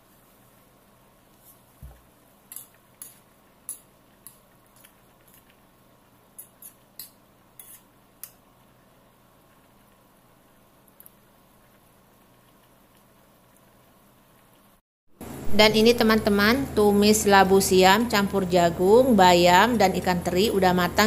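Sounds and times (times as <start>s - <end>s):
utensil scraping frying pan: 6.4s - 8.0s.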